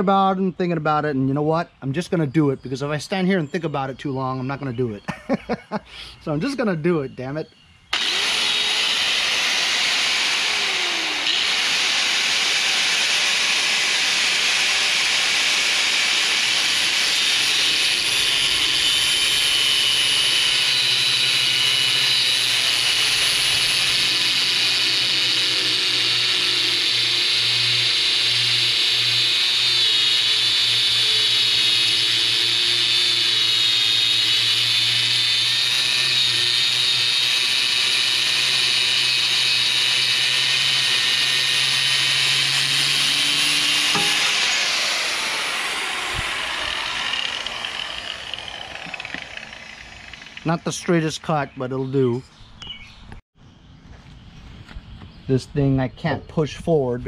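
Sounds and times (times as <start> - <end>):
angle grinder cutting metal: 7.9 - 52.0.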